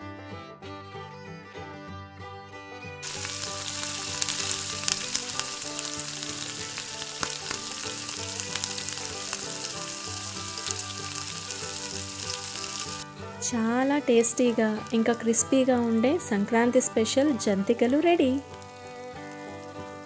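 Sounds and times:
dough deep-frying in hot oil: 3.0s - 13.0s, 17.8s - 20.0s
oil popping: 3.0s - 20.0s.

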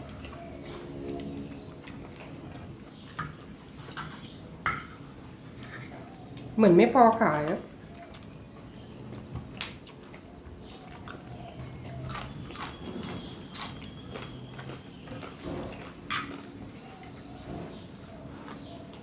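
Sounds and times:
crunchy chewing: 0.0s - 4.4s, 7.5s - 19.0s.

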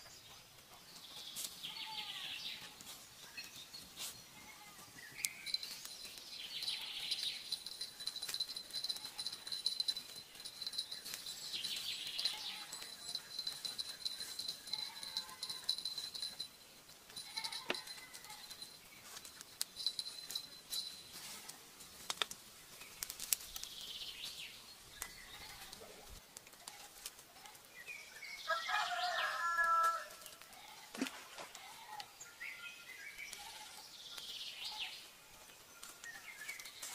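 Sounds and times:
birds calling: 0.0s - 21.3s.

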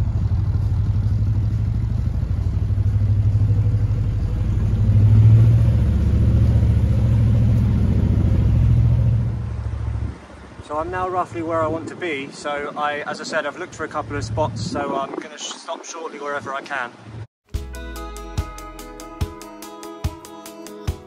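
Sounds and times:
diesel engine running: 0.0s - 10.6s.

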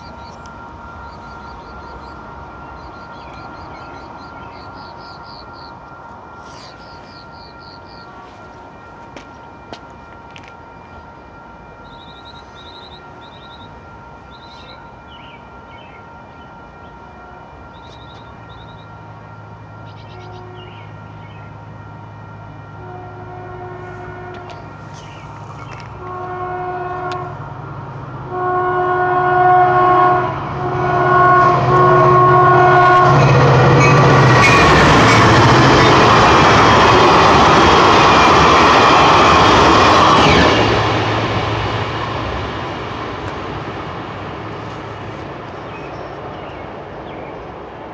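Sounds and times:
train passing with wheel noise: 0.0s - 47.9s
train air horn blasts: 6.3s - 9.5s, 19.8s - 21.1s, 22.2s - 27.5s, 28.2s - 41.5s.

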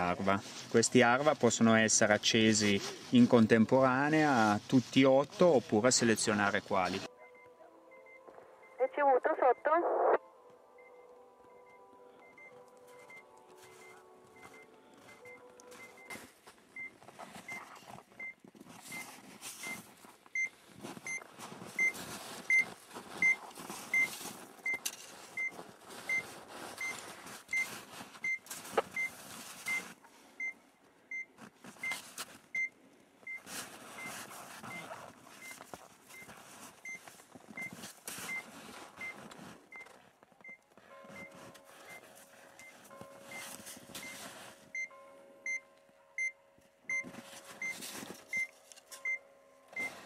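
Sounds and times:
hands rustling in snow: 0.0s - 7.0s, 12.8s - 18.0s, 18.6s - 30.4s, 33.4s - 39.7s, 41.1s - 44.7s
transceiver beeping: 7.0s - 16.2s, 21.8s - 22.6s, 23.2s - 24.8s, 44.8s - 50.0s.

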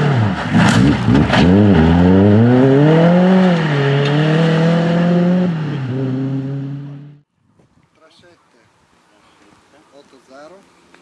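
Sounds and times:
car engine accelerating hard: 0.0s - 7.2s.

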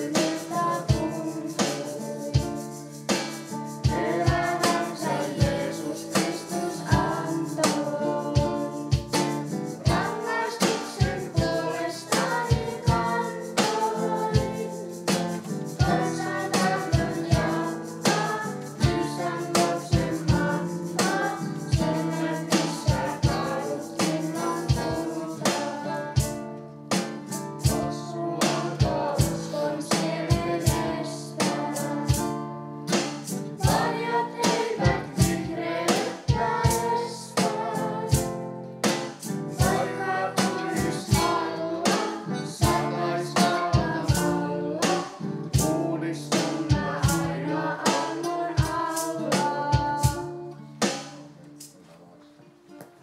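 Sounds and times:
children's choir singing: 0.0s - 26.4s, 27.0s - 32.4s, 33.0s - 50.4s
acoustic guitar: 0.0s - 53.0s
electronic drum beat: 1.8s - 25.1s.

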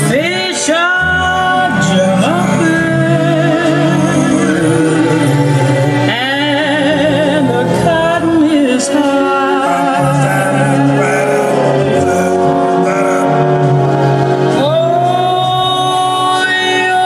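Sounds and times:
person singing with strong vibrato: 0.0s - 17.0s
sustained music accompaniment: 0.0s - 17.0s.

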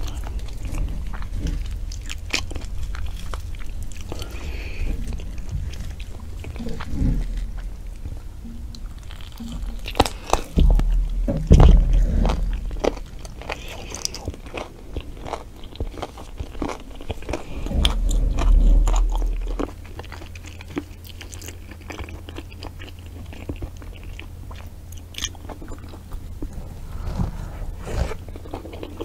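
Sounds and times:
heavy low thuds: 0.0s - 14.6s, 17.2s - 20.4s
chewing and tearing meat: 0.0s - 29.0s.

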